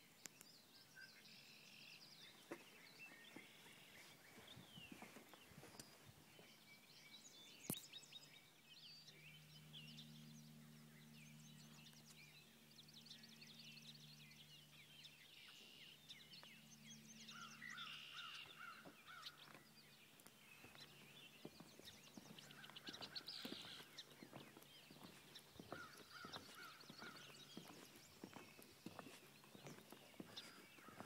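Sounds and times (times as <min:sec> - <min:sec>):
birds singing and chirping: 0:00.0 - 0:31.0
footsteps on wooden planks: 0:18.4 - 0:19.6, 0:20.2 - 0:31.0.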